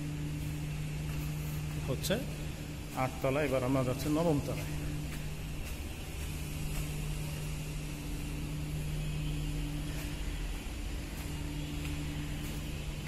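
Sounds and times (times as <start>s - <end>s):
low electrical hum: 0.0s - 13.0s
footsteps on concrete stairs: 4.4s - 7.6s, 9.8s - 13.0s.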